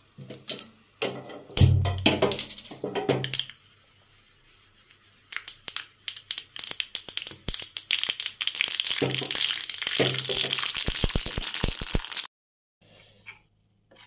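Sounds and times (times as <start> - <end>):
seeds popping in hot oil: 0.4 - 3.6, 5.3 - 12.3.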